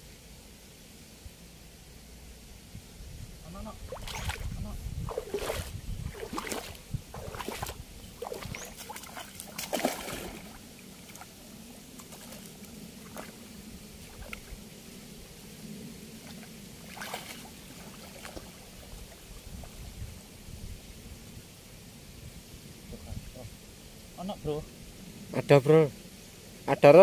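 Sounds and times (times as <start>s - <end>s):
water lapping: 3.8s - 14.6s, 16.2s - 19.9s
river water splashing: 3.8s - 14.7s, 16.2s - 19.9s.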